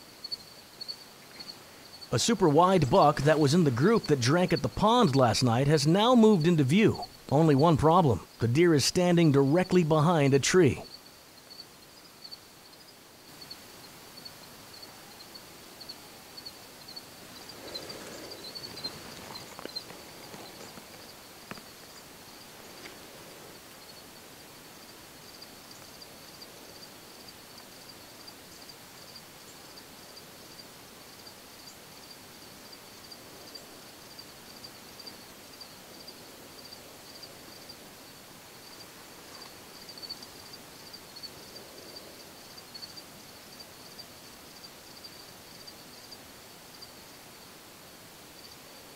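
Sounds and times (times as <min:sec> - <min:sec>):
insect chirping: 0:00.0 - 0:48.9
soft rustle: 0:17.2 - 0:23.6.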